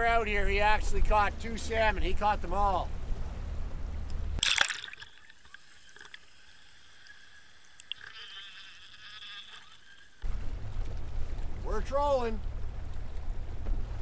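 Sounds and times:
faint high whine: 0:00.0 - 0:13.1
boat engine rumble: 0:00.0 - 0:14.0
wind: 0:00.0 - 0:14.0
water splash: 0:04.4 - 0:10.2
muffled underwater hush: 0:05.0 - 0:11.7.

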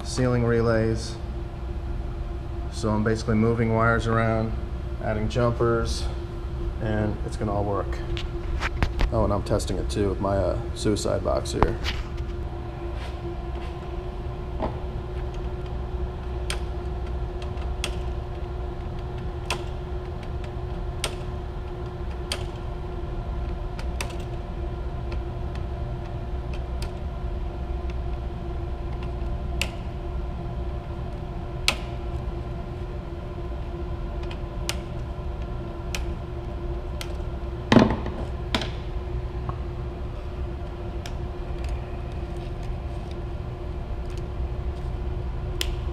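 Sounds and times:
low machinery hum: 0:00.0 - 0:45.9.

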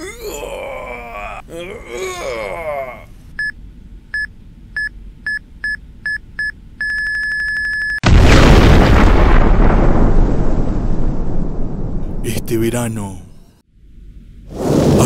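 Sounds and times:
loud explosion: 0:08.0 - 0:12.5, 0:14.5 - 0:15.0.

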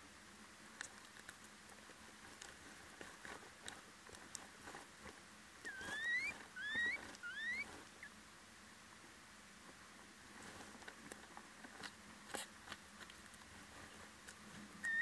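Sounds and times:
owl scratching nest litter: 0:01.3 - 0:08.2, 0:10.5 - 0:15.0
owl squeaky calls: 0:05.6 - 0:08.1, 0:14.8 - 0:15.0.

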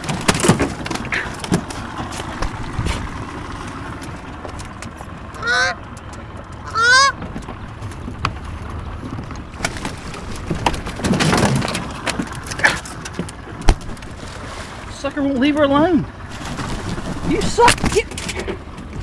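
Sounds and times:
goose honking: 0:05.3 - 0:05.8, 0:06.6 - 0:07.2.

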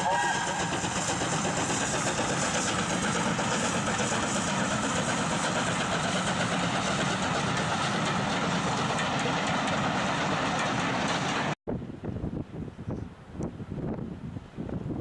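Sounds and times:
coaches rolling on rails: 0:00.0 - 0:11.6
steam locomotive exhaust: 0:00.0 - 0:11.6.

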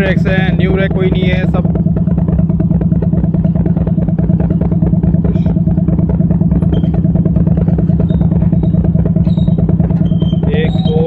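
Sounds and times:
diesel locomotive droning: 0:00.0 - 0:11.0
faint high squeaks: 0:06.6 - 0:07.1, 0:07.9 - 0:11.0.

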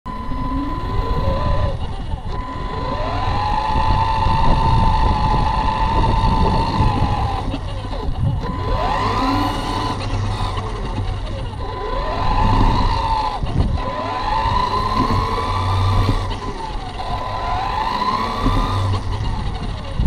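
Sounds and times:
steady high tone: 0:00.1 - 0:20.0
toy car motor whining: 0:00.1 - 0:20.0
tyres rumbling on pavement: 0:00.3 - 0:20.0.

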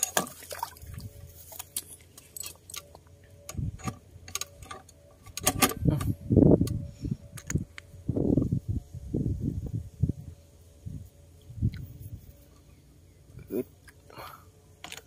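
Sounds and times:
fishing tackle clicking and rattling: 0:01.5 - 0:03.1.

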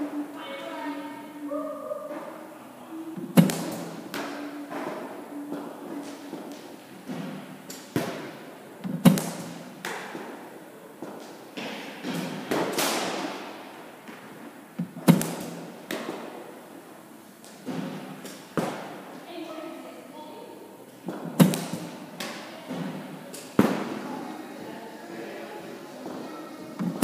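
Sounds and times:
balls knocking into gloves: 0:03.2 - 0:05.0, 0:14.0 - 0:16.2, 0:21.0 - 0:23.9.

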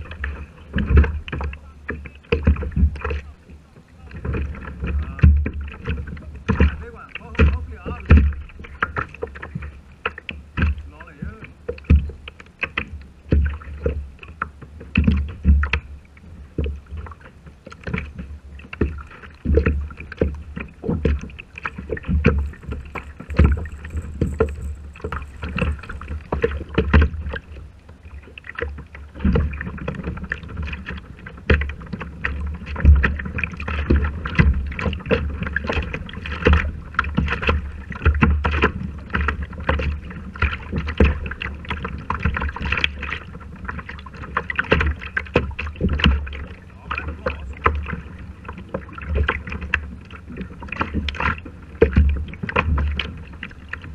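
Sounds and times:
water slapping kayak hull: 0:00.0 - 0:53.9
steady low rumble: 0:18.2 - 0:31.8, 0:46.2 - 0:49.1.

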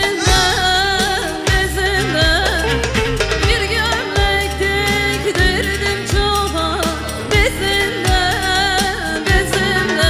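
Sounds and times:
deep drum beat: 0:00.0 - 0:04.5
live band playing: 0:00.0 - 0:10.0
woman singing into a microphone: 0:00.0 - 0:10.0.

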